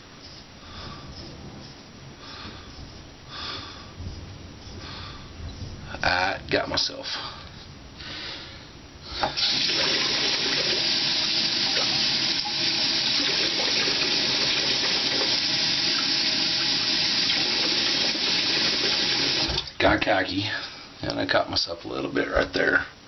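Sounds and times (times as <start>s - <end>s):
sink tap turned on: 9.3s - 19.7s
water running from tap: 9.4s - 19.8s.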